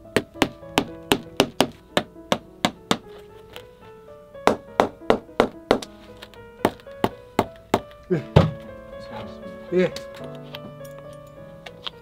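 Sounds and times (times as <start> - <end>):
background music: 0.0 - 12.0
hammer tapping: 0.2 - 3.1, 4.5 - 5.9.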